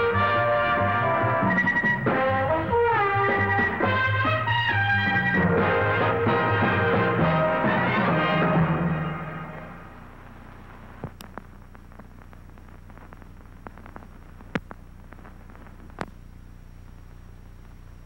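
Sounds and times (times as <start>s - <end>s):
orchestral jingle: 0.0s - 9.9s
film soundtrack surface noise: 0.0s - 18.0s.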